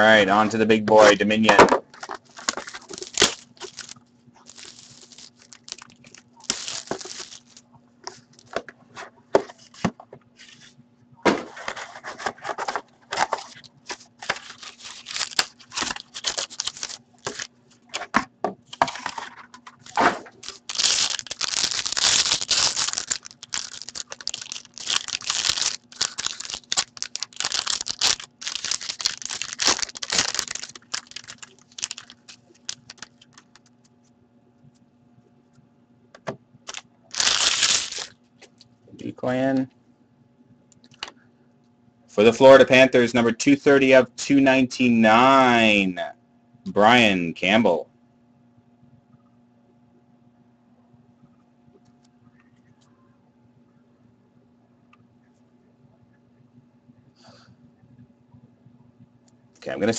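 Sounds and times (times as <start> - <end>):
foil wrapping tearing and crinkling: 1.9 - 7.6, 13.4 - 17.5, 19.8 - 33.7, 36.6 - 38.2.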